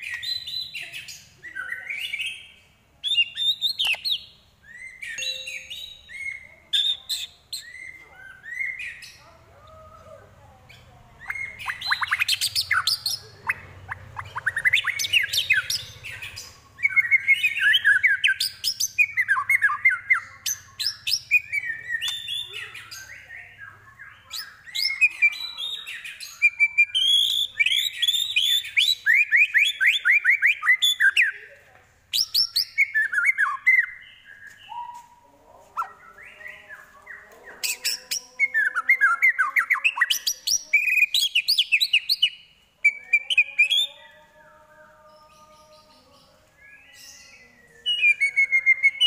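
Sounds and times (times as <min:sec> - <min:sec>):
bird singing varied song: 0:00.0 - 0:49.0.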